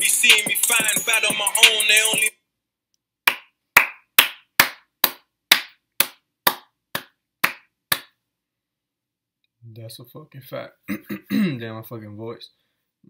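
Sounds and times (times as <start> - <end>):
person clapping hands: 3.3 - 8.2.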